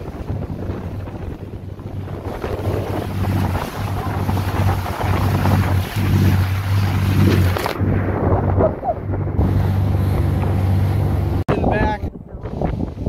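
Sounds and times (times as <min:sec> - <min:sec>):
boat engine drone: 0:00.0 - 0:11.9
water rushing along hull: 0:00.0 - 0:13.0
wind buffeting microphone: 0:00.0 - 0:13.0.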